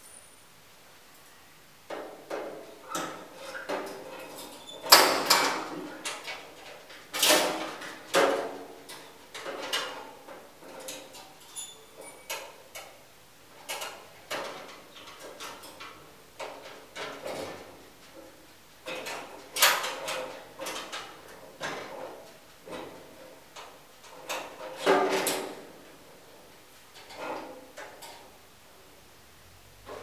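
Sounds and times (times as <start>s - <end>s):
wire rack clanking on metal: 1.9s - 13.0s, 13.6s - 28.4s.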